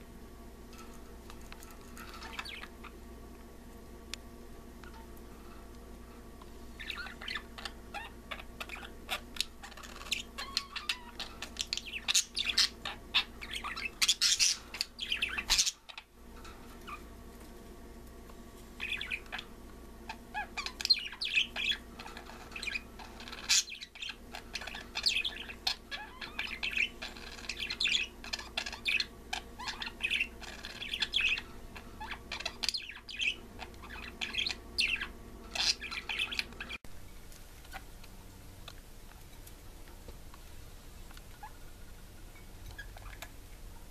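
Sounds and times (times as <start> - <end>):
budgerigars chirping and warbling: 2.0 - 3.0, 6.7 - 16.1, 16.8 - 17.0, 18.8 - 36.8, 42.6 - 43.3.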